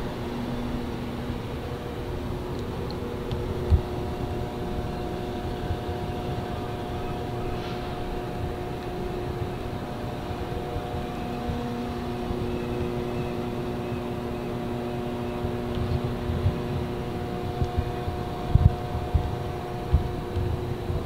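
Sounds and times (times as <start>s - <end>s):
steady mechanical hum: 0.0s - 21.0s
low thumps: 15.5s - 21.0s.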